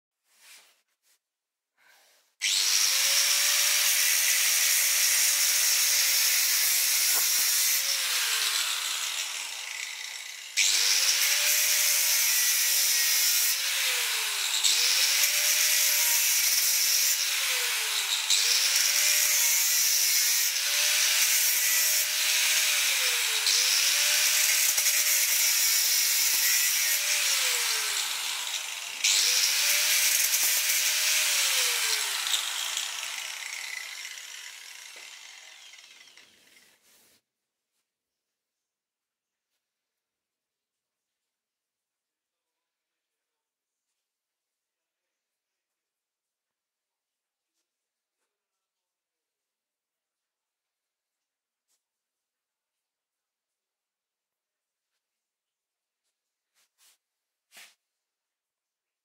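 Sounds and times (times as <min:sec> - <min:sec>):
angle grinder cutting metal: 0:02.4 - 0:36.8.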